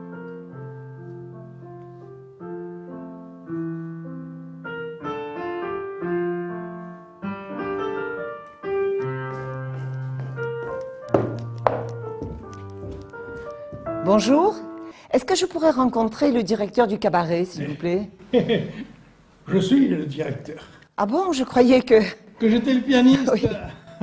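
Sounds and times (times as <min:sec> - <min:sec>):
solo piano tune: 0:00.0 - 0:15.0.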